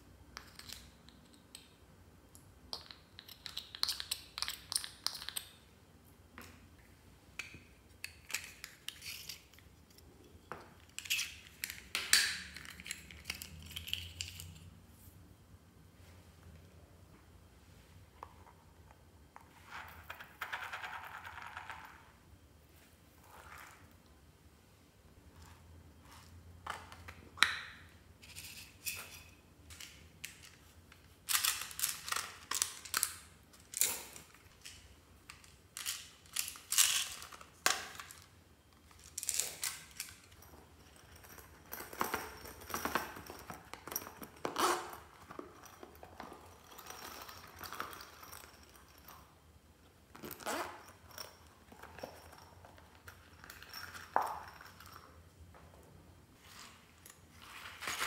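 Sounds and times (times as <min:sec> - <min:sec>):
plastic toys being handled: 0:25.4 - 0:40.4.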